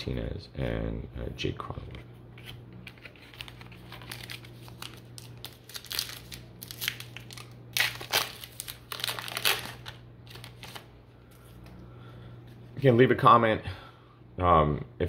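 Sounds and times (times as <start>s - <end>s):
foil wrapper crinkling: 2.9s - 10.9s.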